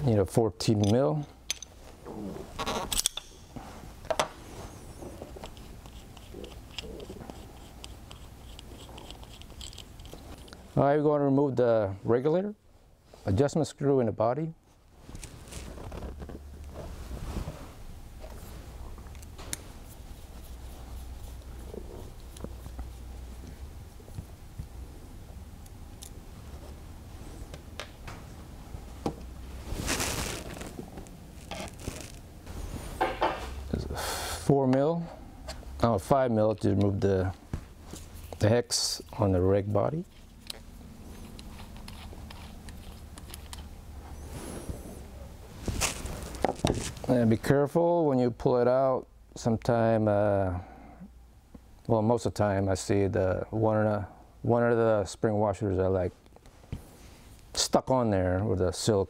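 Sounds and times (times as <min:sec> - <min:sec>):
steady low hum: 0:00.0 - 0:57.6
rustle: 0:43.0 - 0:47.2.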